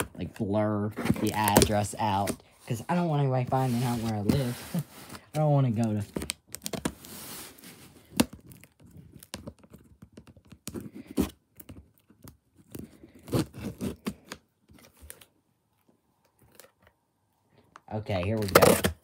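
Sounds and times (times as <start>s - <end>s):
cardboard box being torn open: 18.4s - 19.0s.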